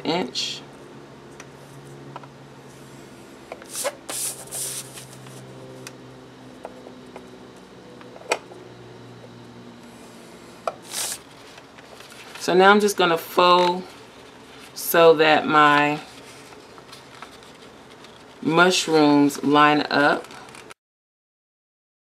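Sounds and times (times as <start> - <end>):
steady low hum: 0.0 - 20.7
bone folder scraping paper: 3.6 - 5.5, 16.0 - 18.4.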